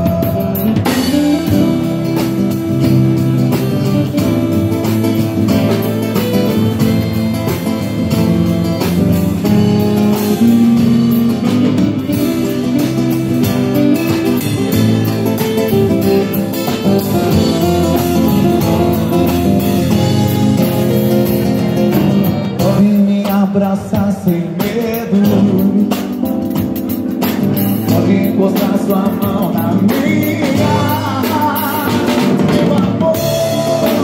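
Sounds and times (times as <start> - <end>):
acoustic guitar strumming: 0.0 - 23.6
drum kit playing: 0.0 - 34.0.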